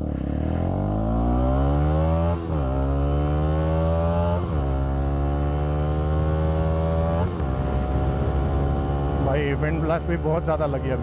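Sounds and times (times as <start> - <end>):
motorcycle engine accelerating: 0.0 - 11.0.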